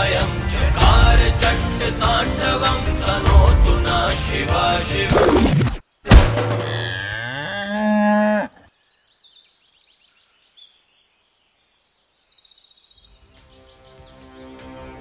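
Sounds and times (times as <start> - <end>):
soft music: 0.0 - 5.1, 13.1 - 15.0
cow mooing: 6.6 - 8.7.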